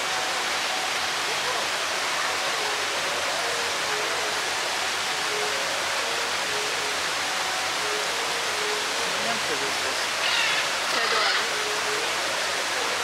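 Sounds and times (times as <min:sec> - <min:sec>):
rush of falling water: 0:00.0 - 0:13.0.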